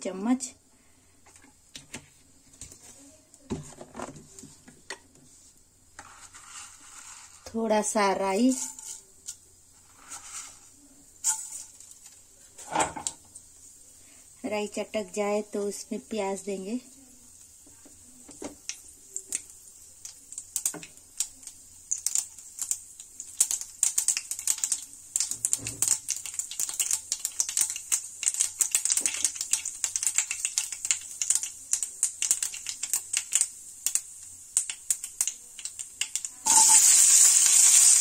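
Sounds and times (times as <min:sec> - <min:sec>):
onions sizzling in oil: 0:05.2 - 0:38.0
mustard seeds popping in oil: 0:08.3 - 0:09.6, 0:10.2 - 0:12.3, 0:17.3 - 0:38.0.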